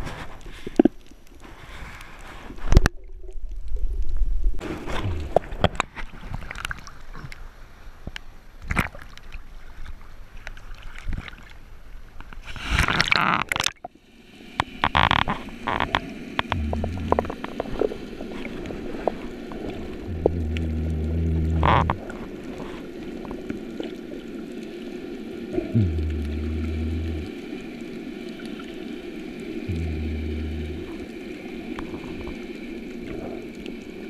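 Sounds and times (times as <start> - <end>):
underwater clicks and knocks: 14.6 - 17.8, 20.1 - 22.1
low hum: 16.5 - 17.4, 19.9 - 22.3, 25.6 - 27.5, 29.6 - 31.3
bubbles rushing: 16.5 - 17.8, 19.7 - 22.7, 25.5 - 27.3, 29.7 - 31.1.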